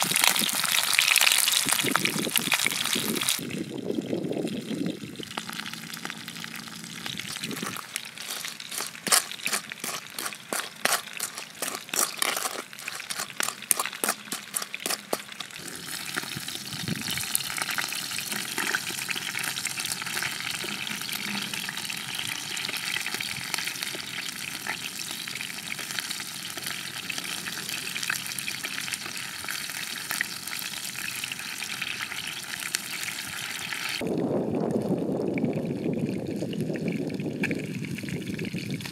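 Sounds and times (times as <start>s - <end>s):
wooden spatula scraping a pan: 7.6s - 16.0s
food sizzling in a pan: 12.6s - 34.0s.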